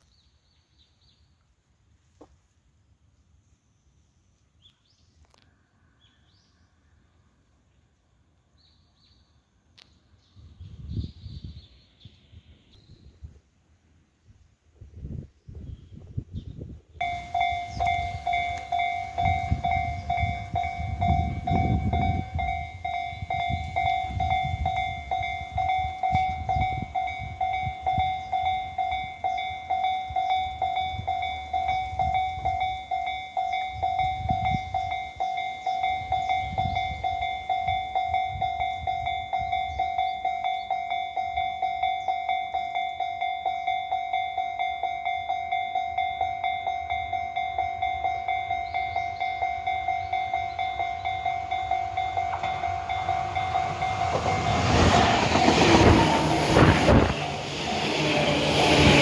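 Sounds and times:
level crossing alarm bell: 0:17.0 - 0:55.9.

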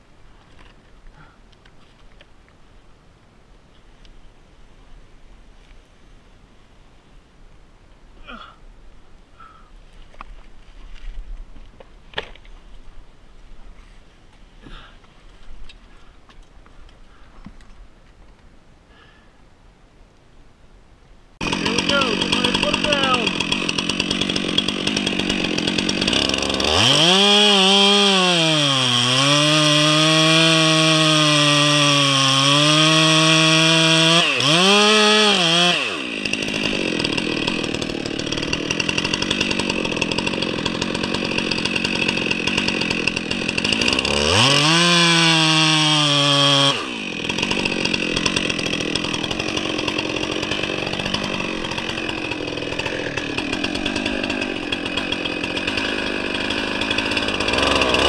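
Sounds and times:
chainsaw cutting wood: 0:21.4 - 0:58.0
chainsaw idling: 0:21.4 - 0:58.0.

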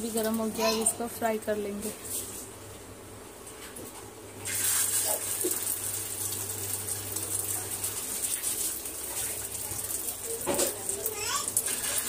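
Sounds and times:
food sizzling in hot oil: 0:04.4 - 0:12.0.

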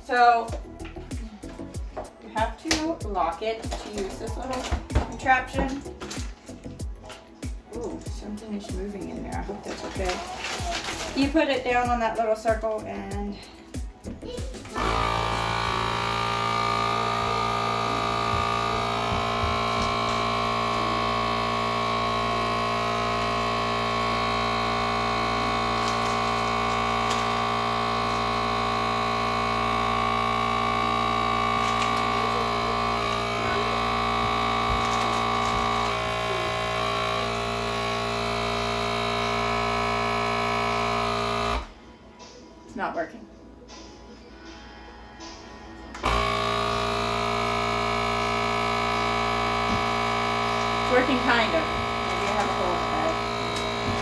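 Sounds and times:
vacuum sealer pump humming: 0:13.4 - 0:41.8, 0:46.0 - 0:54.0.

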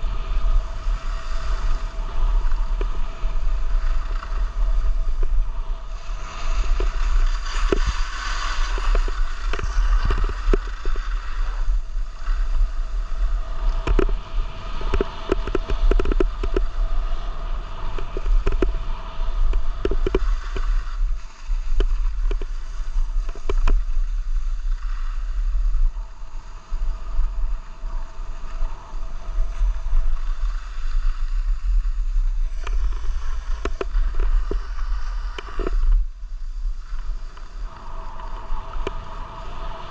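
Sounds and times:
skis scraping on snow: 0:00.0 - 0:39.9
wind buffeting microphone: 0:00.0 - 0:39.9.

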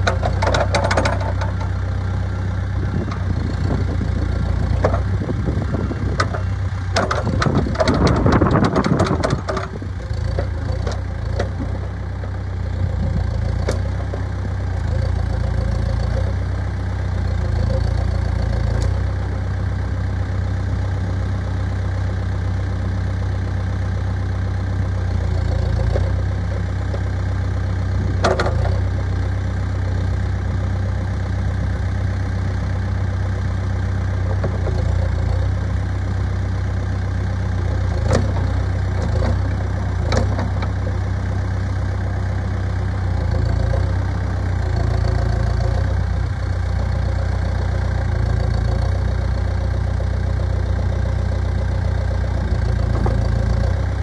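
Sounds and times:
diesel engine running: 0:00.0 - 0:54.0.

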